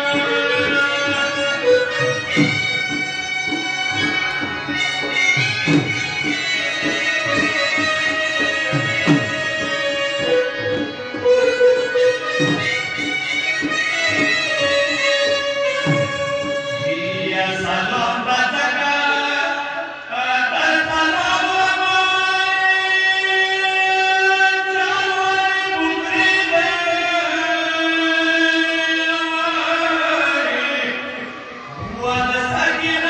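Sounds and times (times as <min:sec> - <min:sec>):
reed pipes playing long notes: 0:00.0 - 0:17.8.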